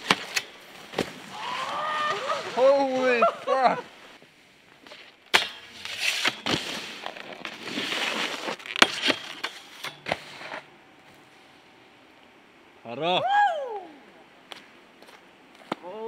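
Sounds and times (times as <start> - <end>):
snowboard scraping along rail: 0.0 - 11.6.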